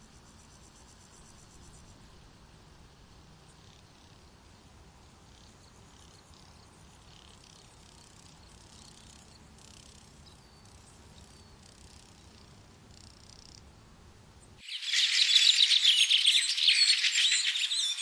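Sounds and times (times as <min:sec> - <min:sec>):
faint bird chirps: 0:05.3 - 0:13.6, 0:14.6 - 0:18.0.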